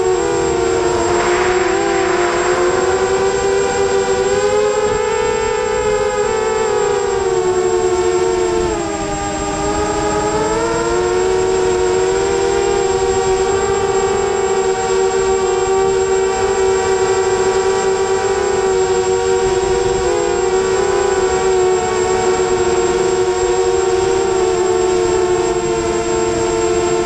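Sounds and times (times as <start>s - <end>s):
drone motors whining: 0.0s - 27.0s.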